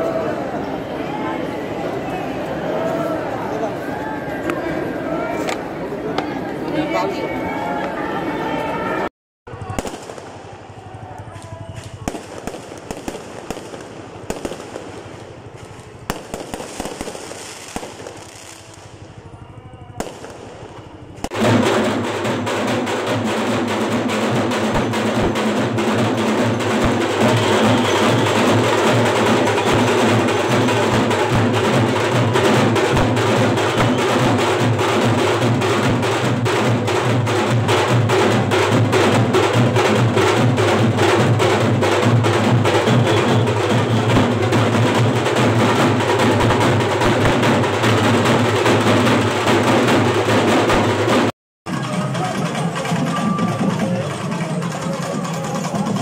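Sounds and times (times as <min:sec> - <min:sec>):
fireworks popping and crackling: 0:09.5 - 0:38.4, 0:39.3 - 0:49.2
fast festival drumming: 0:09.5 - 0:56.0.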